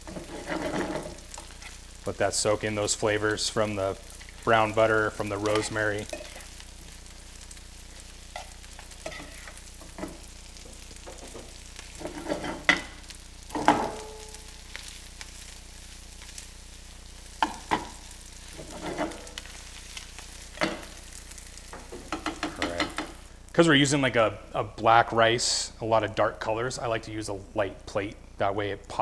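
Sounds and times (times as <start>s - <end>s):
low steady sizzle: 0.0s - 29.0s
metal spoon scraping and clinking pan: 0.1s - 1.2s, 8.4s - 10.1s, 12.0s - 12.8s, 18.6s - 19.3s.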